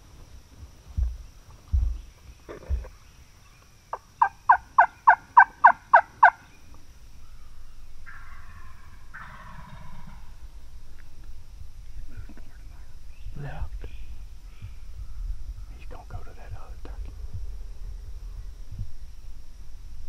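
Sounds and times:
wild turkey yelping: 3.9s - 6.5s, 7.2s - 10.2s.

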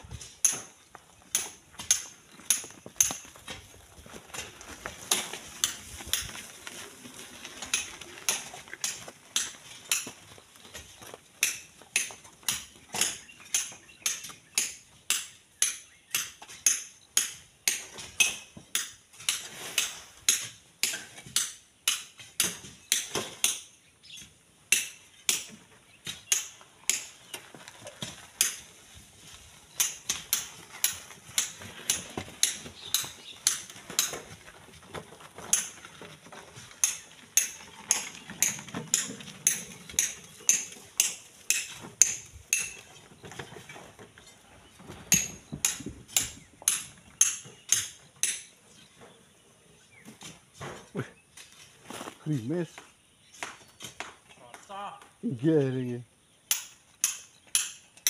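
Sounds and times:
iron tools striking stone: 0.4s - 3.4s, 7.7s - 10.2s, 11.4s - 23.8s, 24.7s - 27.2s, 28.4s - 28.7s, 29.8s - 34.4s, 35.5s - 35.9s, 36.8s - 43.0s, 45.1s - 48.5s, 56.5s - 58.0s.

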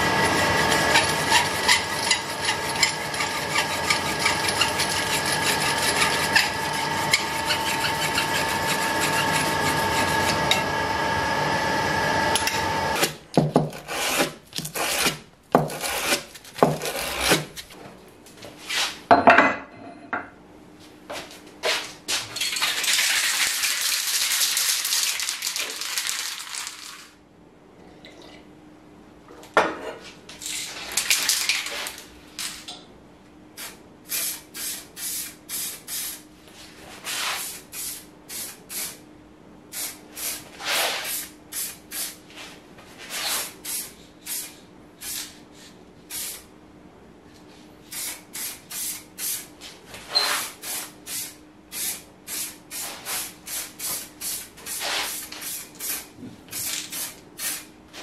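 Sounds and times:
lathe sanding hiss and whine: 0.0s - 13.0s
sandpaper rubbing: 0.7s - 10.4s, 37.0s - 37.6s, 40.3s - 41.3s, 54.7s - 55.4s.

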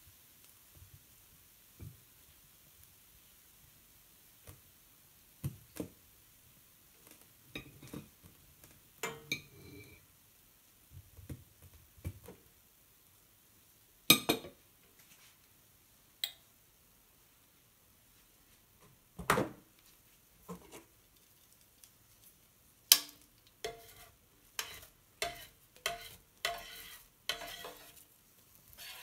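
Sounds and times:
knife tapping on ceramic plate: 24.6s - 27.8s.

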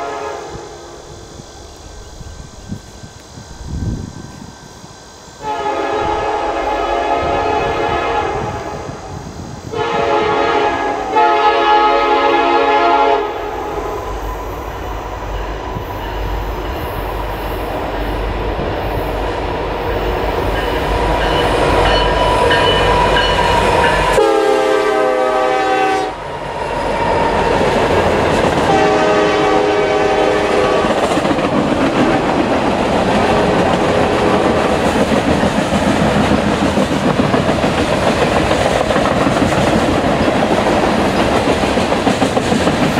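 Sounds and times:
train air horn blasts: 0.0s - 1.4s, 5.4s - 9.1s, 9.7s - 14.0s, 20.6s - 26.3s, 28.6s - 31.0s.

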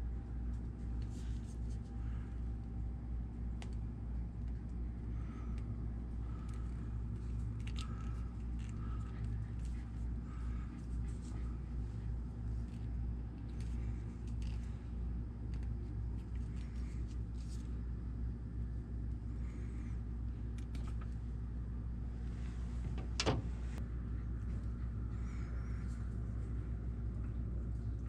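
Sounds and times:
steady low hum: 0.0s - 28.0s
small clicks of wire handling: 6.3s - 9.8s.

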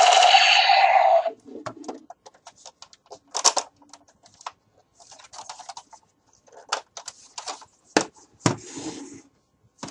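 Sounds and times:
plastic toy clicking and rustling: 1.9s - 7.6s.

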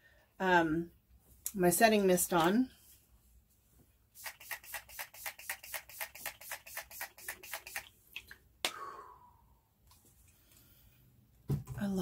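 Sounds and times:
spray bottle hissing sprays: 4.2s - 7.9s.

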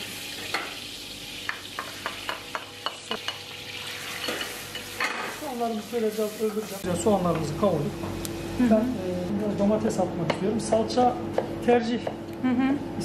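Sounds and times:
onions sizzling in a saucepan: 0.0s - 7.2s.

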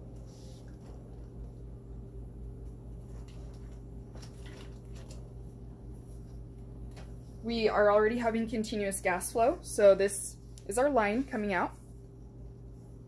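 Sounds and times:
low equipment hum: 0.0s - 13.0s
plastic tubing clicks and rustles: 3.1s - 5.3s.

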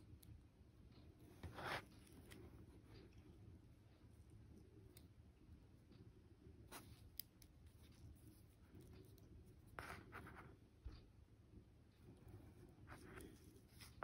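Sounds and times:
scratchy rustle of handling: 12.0s - 14.0s.

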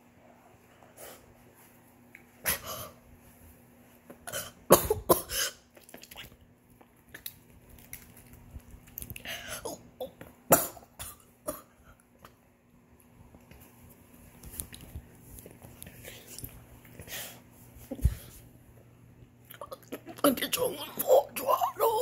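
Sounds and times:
girl coughing and sputtering: 4.2s - 5.6s, 9.6s - 11.8s, 19.6s - 22.0s.

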